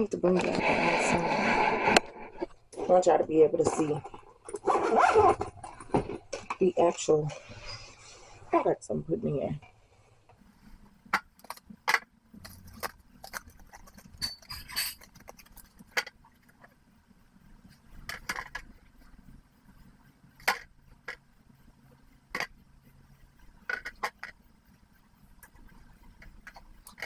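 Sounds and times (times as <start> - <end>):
glass bottles clinking on tray: 14.1 - 15.1.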